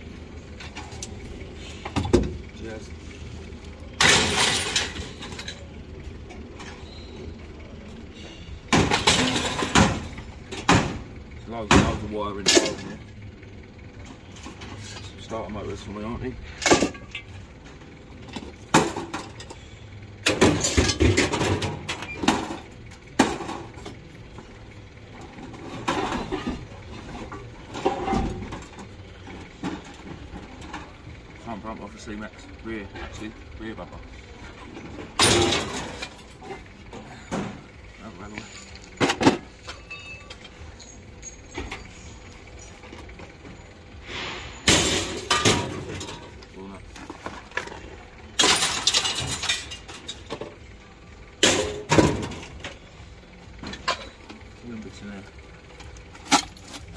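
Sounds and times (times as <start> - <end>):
low engine-like rumble: 0.0 - 56.9
scrap metal clattering: 4.0 - 5.7, 25.3 - 31.1, 34.4 - 50.6.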